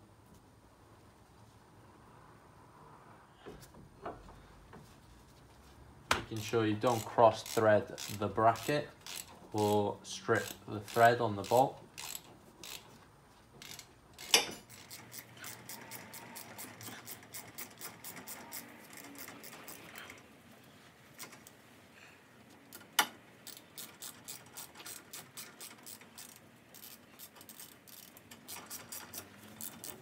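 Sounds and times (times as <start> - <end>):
ratchet wrench clicking: 6.4 - 12.9, 13.6 - 20.1, 22.7 - 30.0.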